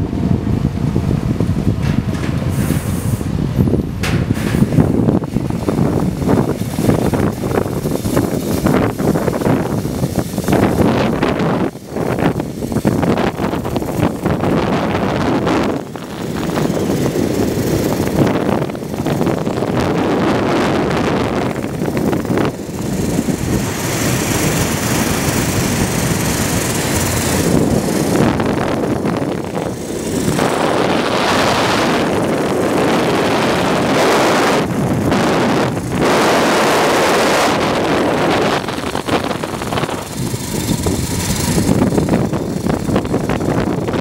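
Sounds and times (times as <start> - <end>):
wind buffeting microphone: 0.0 - 44.0.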